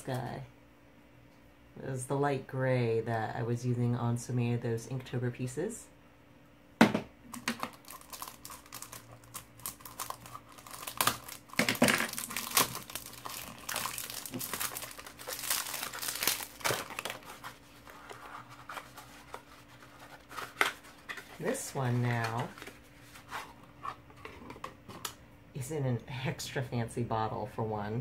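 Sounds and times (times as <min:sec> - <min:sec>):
paper packaging crinkling: 0:07.3 - 0:23.6.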